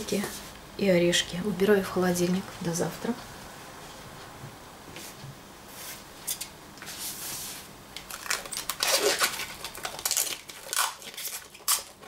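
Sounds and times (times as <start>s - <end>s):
cling film crinkling: 8.0s - 12.0s.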